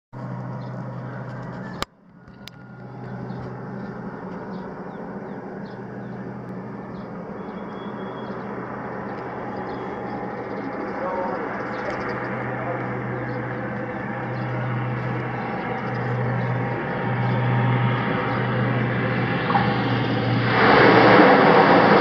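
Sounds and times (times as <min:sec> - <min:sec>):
distant turboprop plane drone: 0:00.2 - 0:22.0
faint high chirps: 0:04.5 - 0:08.5.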